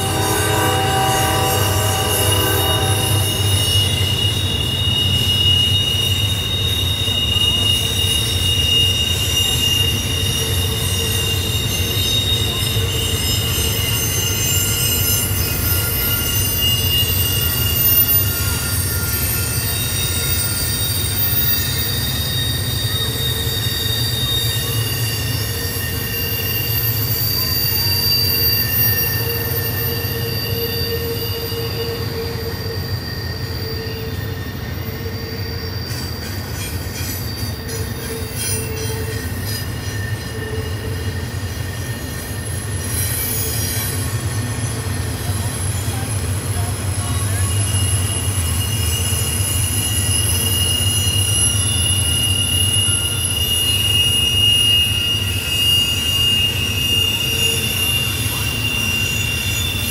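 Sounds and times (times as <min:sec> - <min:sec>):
high-pitched wheel squeal: 0:00.0 - 0:59.9
low rumble of train wheels: 0:00.0 - 0:59.9.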